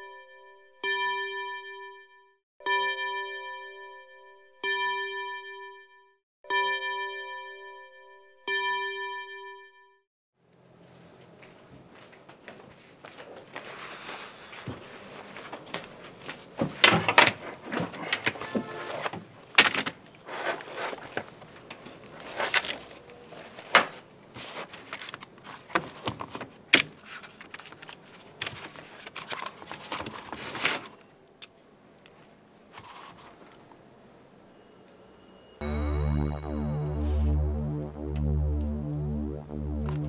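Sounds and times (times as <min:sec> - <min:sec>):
papers rustling: 0:12.2 - 0:31.1, 0:32.1 - 0:33.6.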